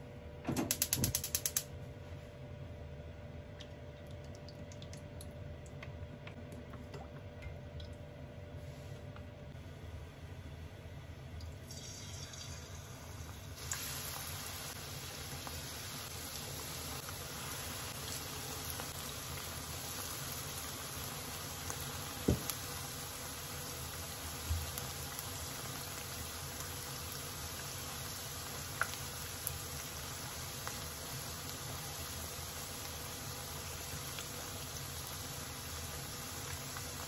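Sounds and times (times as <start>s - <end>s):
leaves deep-frying in oil: 11.5s - 37.0s.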